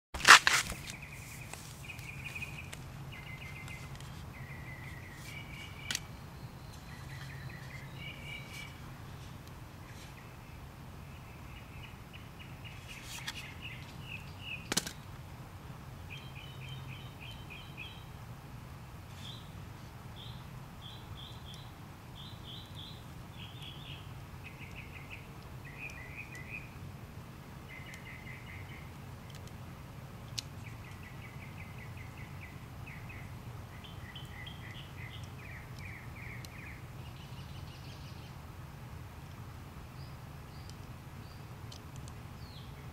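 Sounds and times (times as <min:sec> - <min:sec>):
small birds trilling: 0:00.8 - 0:15.1, 0:20.2 - 0:26.8, 0:30.3 - 0:38.4
sharp clicks: 0:41.7 - 0:42.2.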